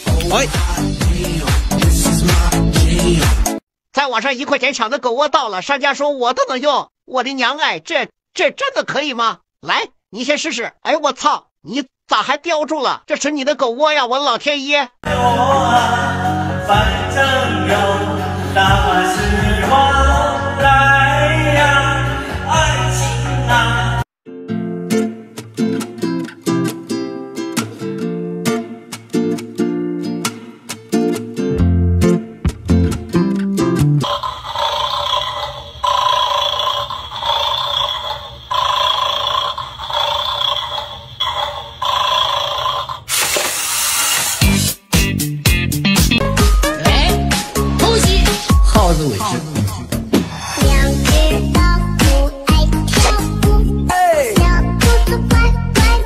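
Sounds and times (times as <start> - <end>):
person singing: 0.0 - 3.5, 15.0 - 24.0, 46.5 - 56.0
backing track with bass: 0.0 - 3.6, 15.1 - 24.0, 31.5 - 34.0, 44.4 - 56.0.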